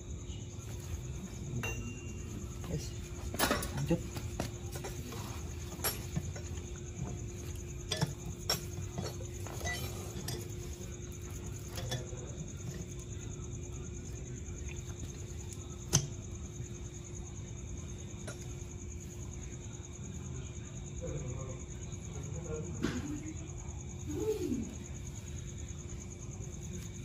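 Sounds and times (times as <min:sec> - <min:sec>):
faint steady hum: 0:00.0 - 0:27.0
light metallic clinks and taps: 0:00.7 - 0:13.2.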